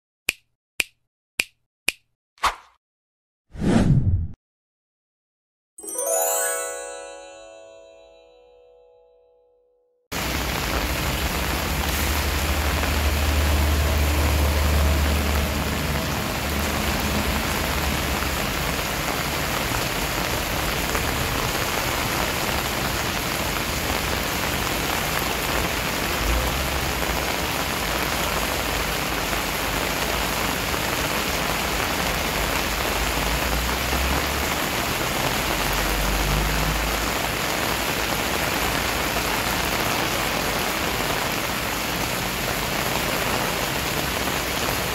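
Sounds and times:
rain on wet paving: 0:10.1 - 0:44.9.

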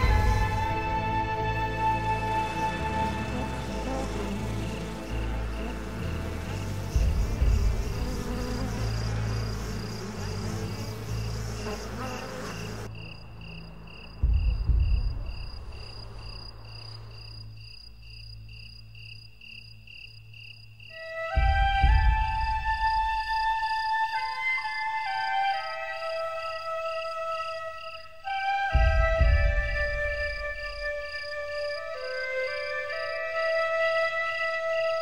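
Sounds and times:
insect chirping: 0:00.0 - 0:35.0
low rumble: 0:13.2 - 0:17.3.

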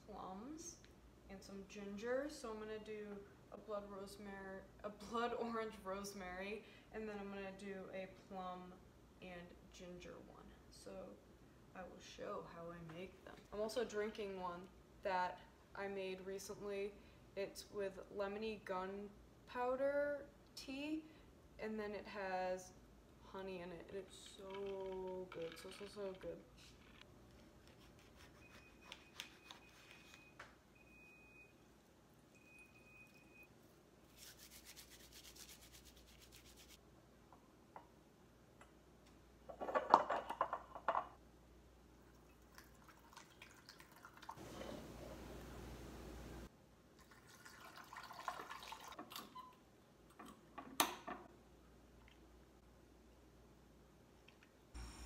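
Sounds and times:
liquid pouring into glass bottles: 0:42.1 - 0:44.8, 0:47.0 - 0:49.4.

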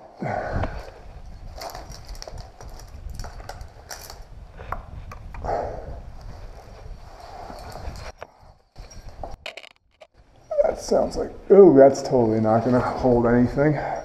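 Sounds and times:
heavy breath: 0:00.0 - 0:01.0, 0:05.4 - 0:06.1, 0:13.7 - 0:14.0.

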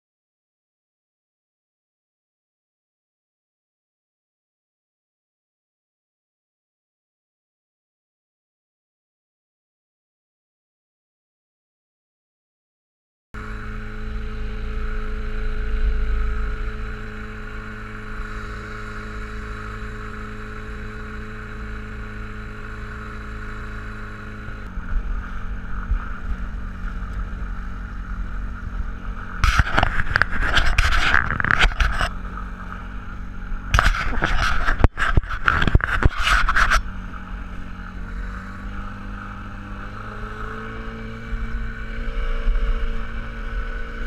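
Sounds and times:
boat motor running: 0:13.4 - 0:44.0.

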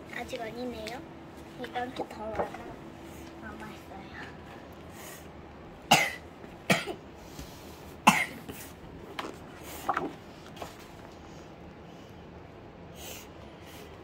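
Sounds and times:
child coughing: 0:05.9 - 0:07.0, 0:08.0 - 0:08.5.

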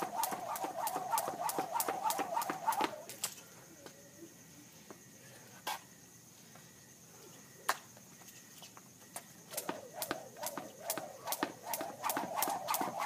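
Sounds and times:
jump rope slapping concrete: 0:00.0 - 0:03.3, 0:09.5 - 0:13.0.

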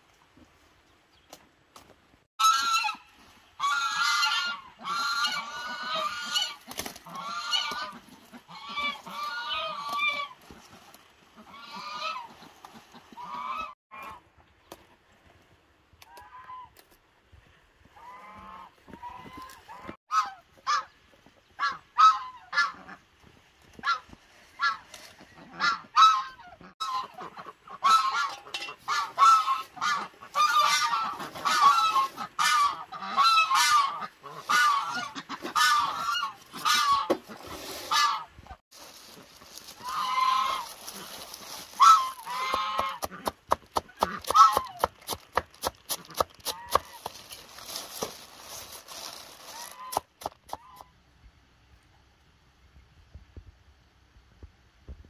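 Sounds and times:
farm waterfowl calling: 0:02.4 - 0:10.7, 0:11.3 - 0:14.2, 0:18.0 - 0:21.0, 0:21.6 - 0:23.1, 0:23.8 - 0:24.0, 0:24.6 - 0:38.6, 0:39.6 - 0:44.9, 0:49.5 - 0:50.9.

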